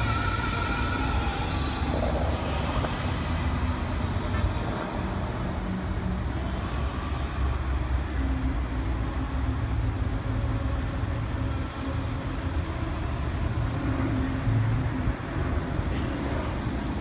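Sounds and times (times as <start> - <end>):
outdoor rumble with rushing hiss: 0.0 - 17.0.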